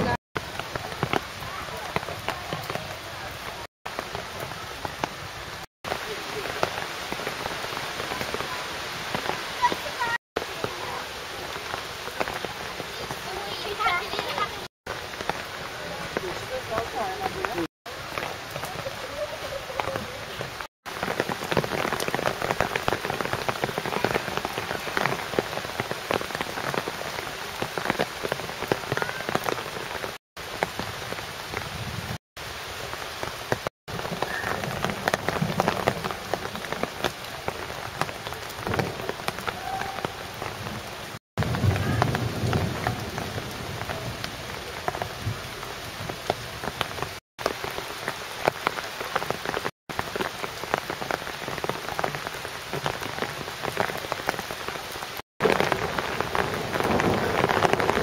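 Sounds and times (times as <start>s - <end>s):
heavy rain pattering: 0.0s - 58.0s.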